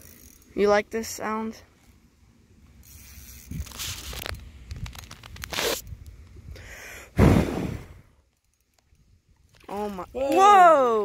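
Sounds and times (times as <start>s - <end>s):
fishing reel drag buzzing: 0.0s - 1.1s, 2.6s - 5.9s
fine reel clicks: 2.8s - 6.3s.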